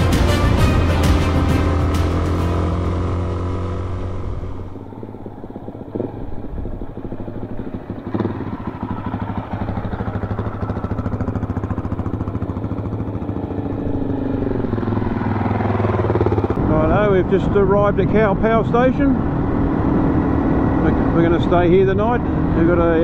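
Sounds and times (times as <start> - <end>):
dirt bike engine idling: 0.0 - 18.2
dirt bike riding up: 0.0 - 23.0.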